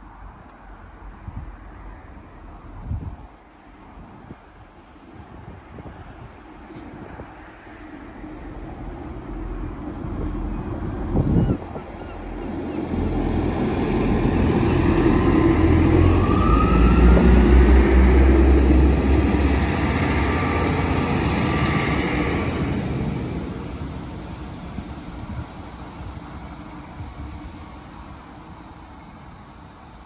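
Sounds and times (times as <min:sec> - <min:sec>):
diesel train engine: 0:06.4 - 0:30.0.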